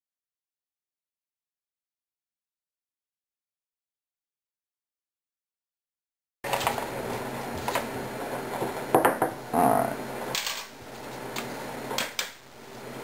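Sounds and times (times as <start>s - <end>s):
steady low hum: 6.5s - 13.0s.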